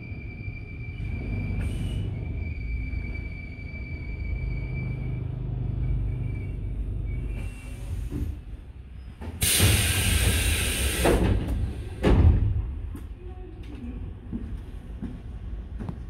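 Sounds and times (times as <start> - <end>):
hiss of air from train doors: 1.6 - 2.2, 7.4 - 8.6, 9.3 - 12.2
heavy thump: 11.1 - 12.7.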